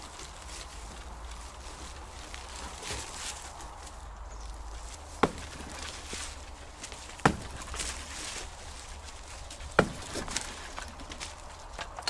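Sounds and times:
sharp blows on wood: 5.2s - 6.4s, 7.1s - 8.1s, 9.6s - 10.9s.

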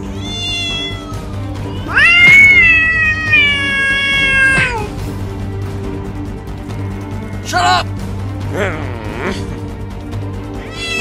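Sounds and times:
animal crying: 0.0s - 4.9s, 10.6s - 11.0s
background music: 0.0s - 11.0s.

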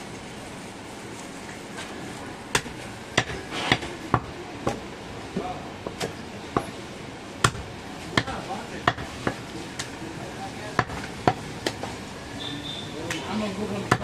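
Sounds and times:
knife chopping meat on wood: 2.6s - 4.8s, 7.4s - 9.4s, 10.8s - 11.8s.

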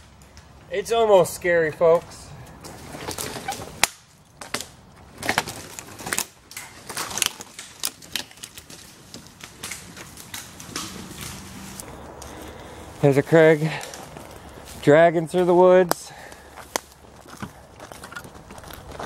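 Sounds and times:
tree trunk dragged on ground: 5.0s - 15.6s
footsteps crunching dry leaves: 5.4s - 19.0s.

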